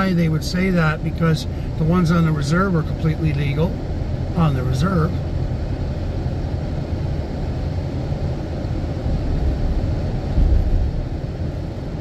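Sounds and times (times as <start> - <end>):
car interior road rumble: 0.0 - 12.0.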